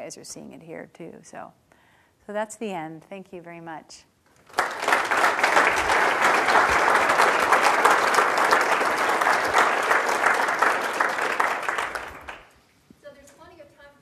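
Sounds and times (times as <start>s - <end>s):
audience applauding: 4.4s - 12.5s.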